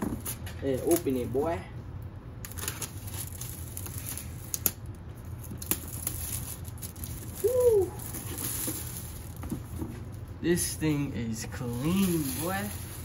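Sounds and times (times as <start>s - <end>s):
low steady hum: 0.0s - 13.0s
plastic wrap crinkling: 2.4s - 10.7s, 11.3s - 13.0s.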